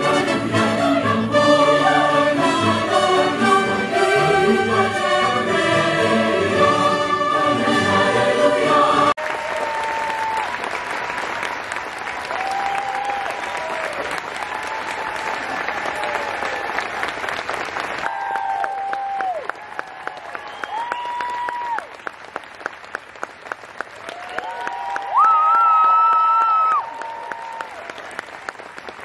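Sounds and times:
choir and orchestra singing: 0.0 - 9.2
audience applauding: 9.1 - 29.0.

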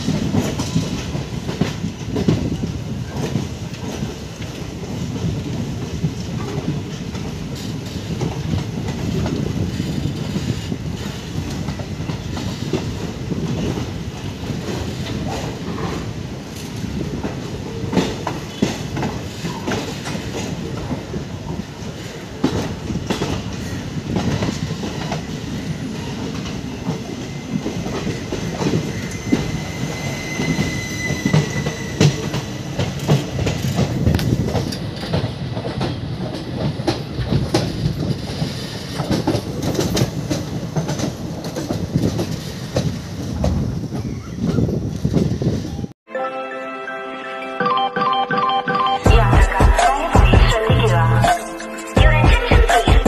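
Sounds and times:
wheels clicking over rail joints: 0.0 - 29.5, 31.2 - 45.9
train wheels rumbling on rails: 0.0 - 46.0
wheel squeal: 28.8 - 32.3.

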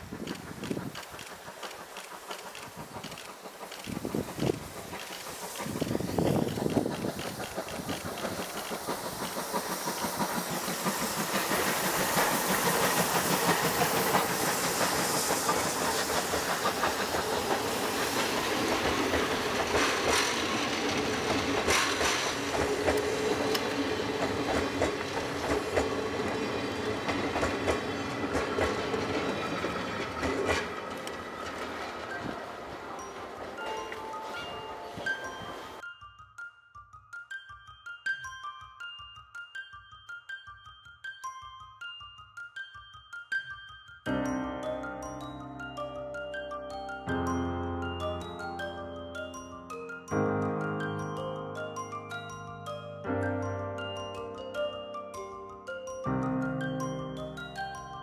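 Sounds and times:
steam locomotive hissing: 0.0 - 35.8
train wheels clacking over rail joints: 0.0 - 35.8.

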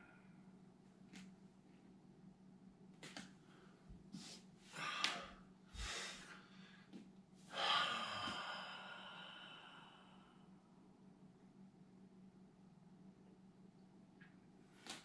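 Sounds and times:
faint low hum: 0.0 - 15.0
man breathing deeply: 3.7 - 10.4.

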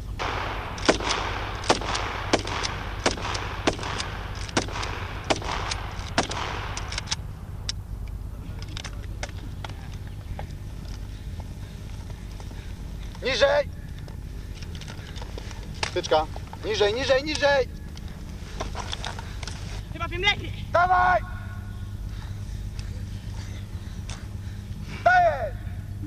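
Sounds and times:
rifle single shots: 0.2 - 7.8.

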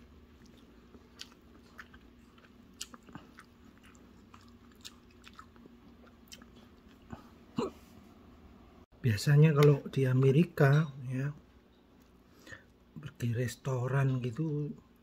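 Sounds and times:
person chewing food: 0.0 - 7.5.

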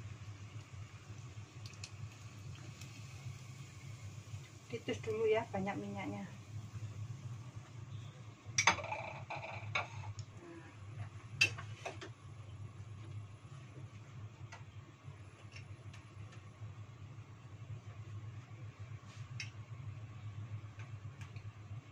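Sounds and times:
hot oil crackling in a pot: 0.0 - 12.2.

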